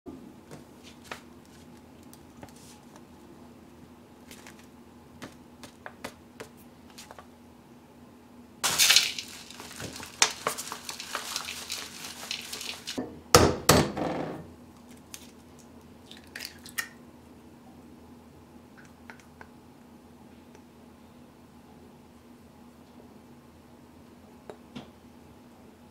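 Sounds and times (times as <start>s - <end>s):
paper bag crinkling: 8.6s - 13.0s
powder rustling into glass bowl: 8.6s - 13.0s.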